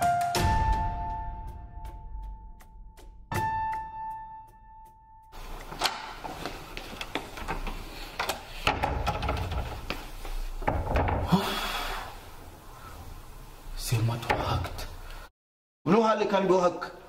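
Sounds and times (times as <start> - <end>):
taps and knocks on wooden door: 8.6 - 11.4.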